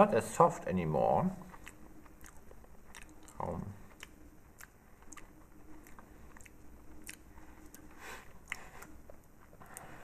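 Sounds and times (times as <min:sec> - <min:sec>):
mouth clicks: 0:01.4 - 0:09.0
person chewing cake: 0:01.4 - 0:10.0.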